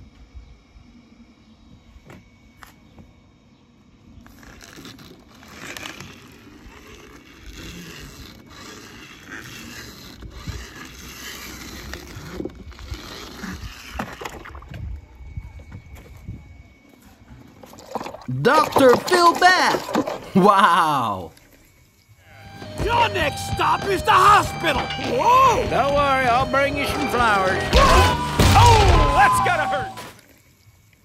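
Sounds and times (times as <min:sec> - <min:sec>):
toy wheels rolling over paper: 0:04.2 - 0:14.5.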